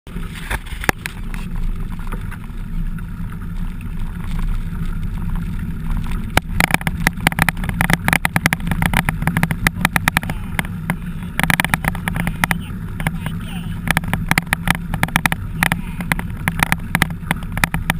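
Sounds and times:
low rumble of tyres and wind: 0.1 - 17.9
bike rattling and knocking: 6.2 - 17.9.

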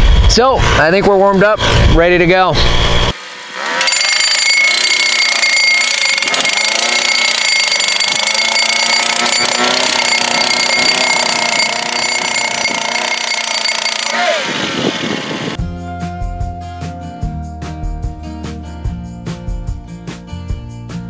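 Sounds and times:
steady high whine: 0.0 - 15.6
engine running: 1.2 - 15.6
post driver hammering: 3.8 - 14.8.

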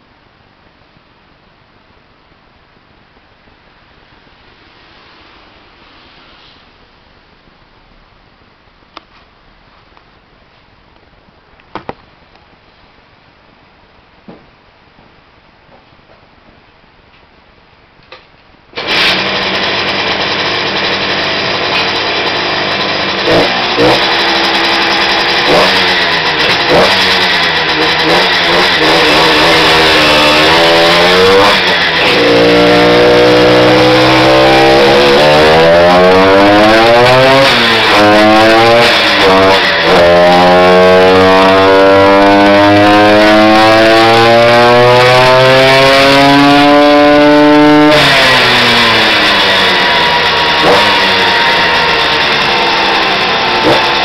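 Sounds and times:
two-stroke engine revving: 18.8 - 54.0.

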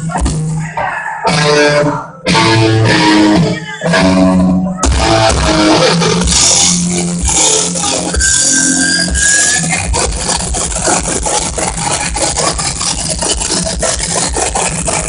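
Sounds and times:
live rock band playing: 0.0 - 15.0.

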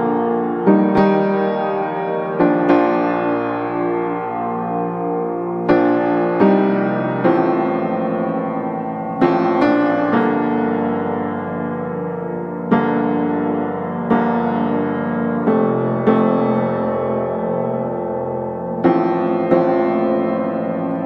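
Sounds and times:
slow piano chords: 0.0 - 21.0.

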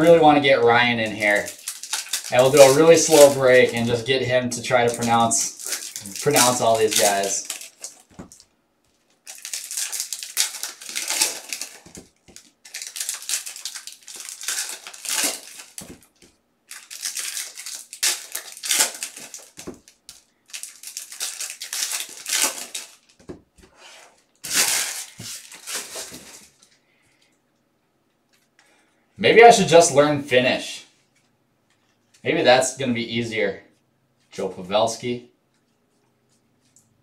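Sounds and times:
foil wrappers crinkling and tearing: 0.0 - 23.3, 24.2 - 26.8.

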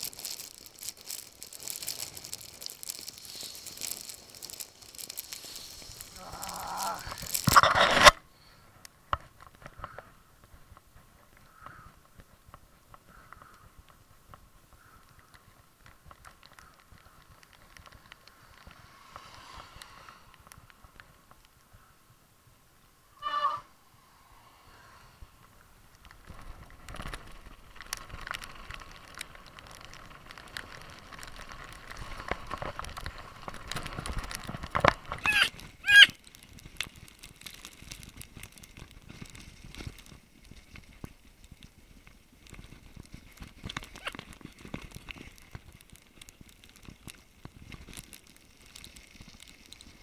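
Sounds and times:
bike rattling over bumps: 0.0 - 8.2, 26.1 - 50.0
tyres crunching on gravel: 0.0 - 8.2, 26.1 - 50.0
short loud squeals: 23.2 - 23.7, 35.2 - 36.2.

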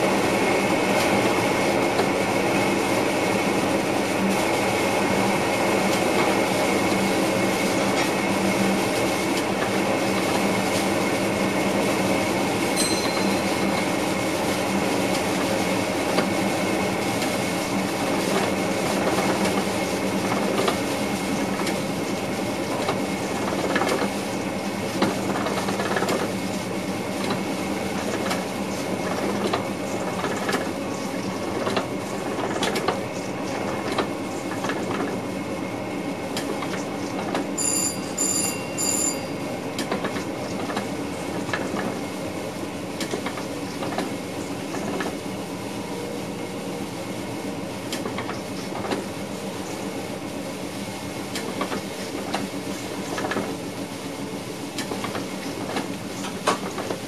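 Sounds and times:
train rumble and hum: 0.0 - 57.0
wheels clicking on track: 12.7 - 35.2, 36.3 - 42.2, 43.0 - 45.3, 47.8 - 49.7, 51.2 - 57.0.

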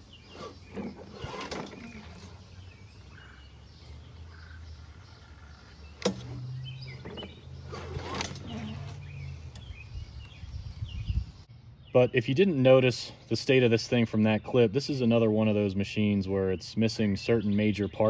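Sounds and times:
birds chirping faintly: 0.0 - 18.0
starter rope pulled out: 0.3 - 2.4, 7.0 - 9.0.

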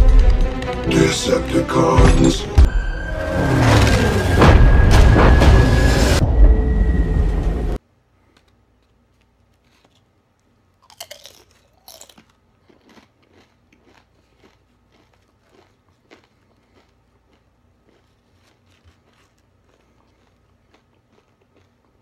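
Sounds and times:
action film music with booms: 0.0 - 7.8
chewing crunches: 8.3 - 22.0
crunching bites of chips: 8.3 - 22.0.

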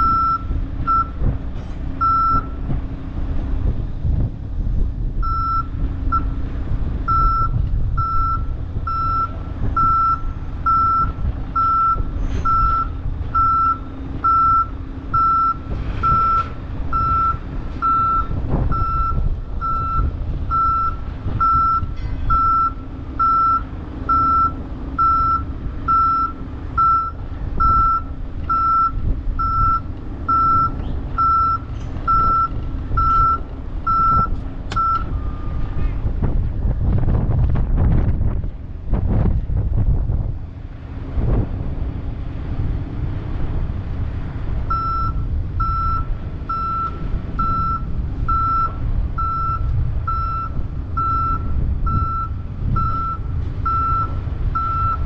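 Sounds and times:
backup alarm beeping: 0.0 - 1.2, 2.0 - 2.6, 5.2 - 6.4, 7.1 - 35.6, 44.7 - 55.0
diesel engine running: 0.0 - 55.0.

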